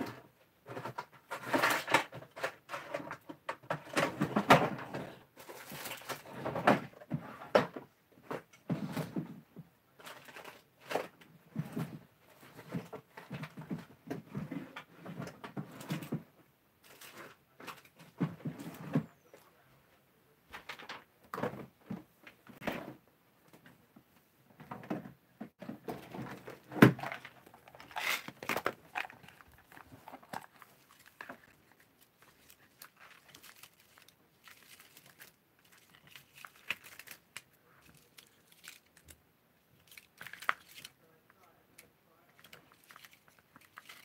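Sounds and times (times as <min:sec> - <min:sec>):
plastic sheets crinkling: 0:05.4 - 0:06.3, 0:25.8 - 0:39.2, 0:39.8 - 0:41.0, 0:42.4 - 0:44.0
plastic cases clicking and knocking: 0:24.7 - 0:31.6.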